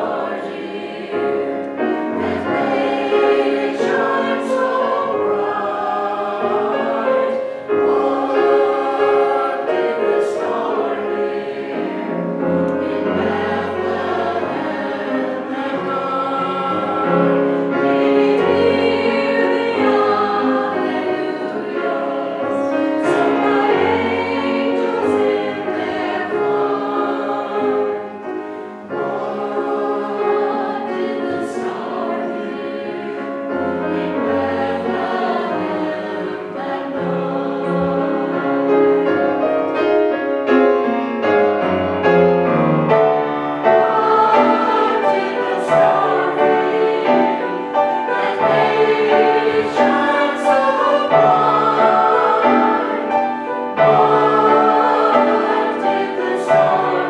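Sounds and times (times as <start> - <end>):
mixed choir singing: 0.0 - 57.0.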